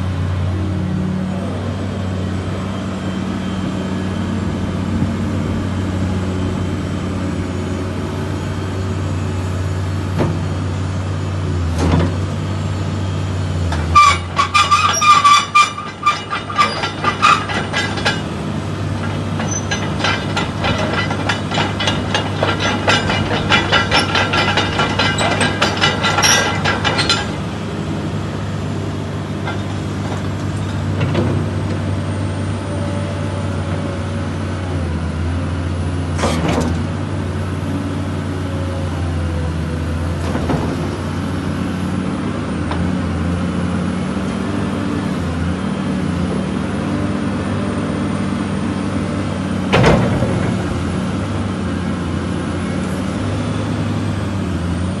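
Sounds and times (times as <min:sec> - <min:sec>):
rapid metallic clattering and squealing: 0:13.7 - 0:27.5.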